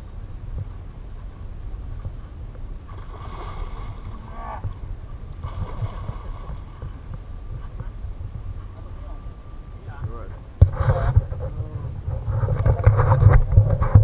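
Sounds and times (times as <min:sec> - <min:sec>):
steady low rumble: 0:00.0 - 0:14.0
fish splashing and thrashing: 0:02.8 - 0:07.4.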